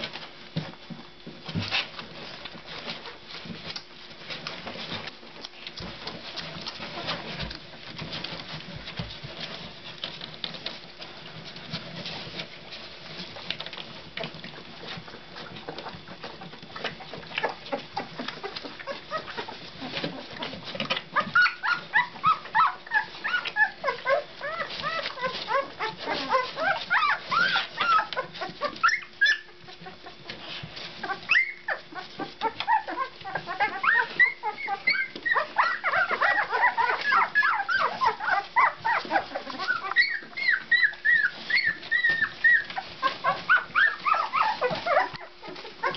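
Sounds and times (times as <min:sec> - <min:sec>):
soft scuffling clicks: 0:00.0 - 0:45.9
puppies squeaking and whimpering: 0:05.8 - 0:45.9.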